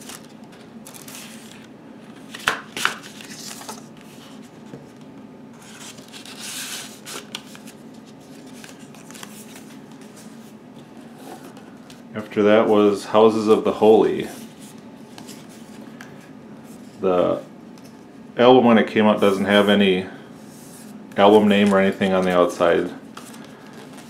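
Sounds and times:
paper sleeve rustling: 0:00.0 - 0:04.5, 0:05.6 - 0:10.6.

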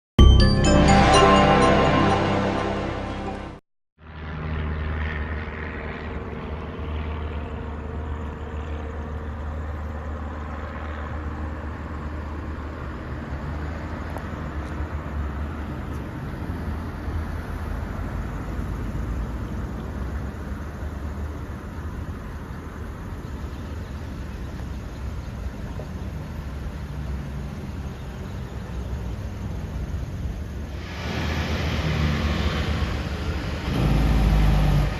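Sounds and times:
cars driving past: 0:10.3 - 0:22.5, 0:29.4 - 0:34.9.

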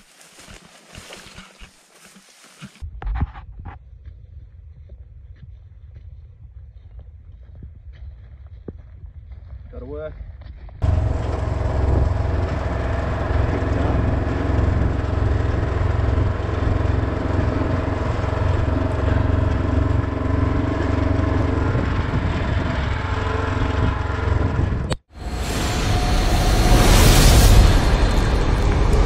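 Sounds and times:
utility vehicle engine running: 0:10.8 - 0:29.0.

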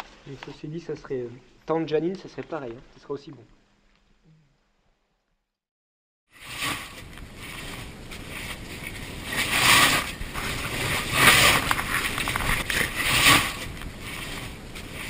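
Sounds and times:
scraping and shuffling on rock: 0:06.6 - 0:15.0.

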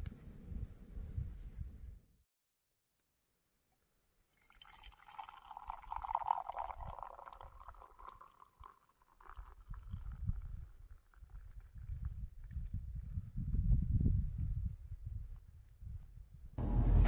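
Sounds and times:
tea pouring into a mug: 0:04.2 - 0:12.5
low rumbling: 0:16.6 - 0:17.0.

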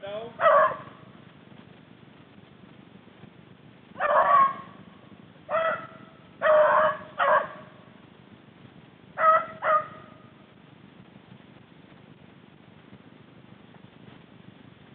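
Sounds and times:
hounds barking: 0:00.4 - 0:01.1, 0:04.0 - 0:04.9, 0:05.5 - 0:07.9, 0:09.2 - 0:10.3.

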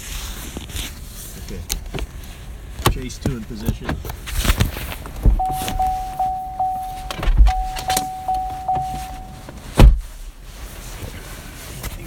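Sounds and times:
high electronic tone: 0:05.4 - 0:09.5.

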